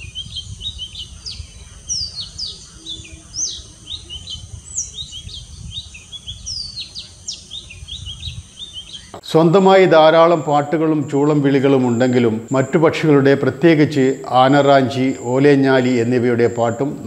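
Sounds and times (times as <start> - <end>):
bird singing whistled song: 0.0 - 9.2.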